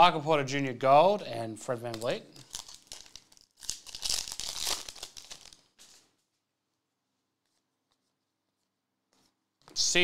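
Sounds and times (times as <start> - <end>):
foil wrapper tearing and crinkling: 2.4 - 6.1.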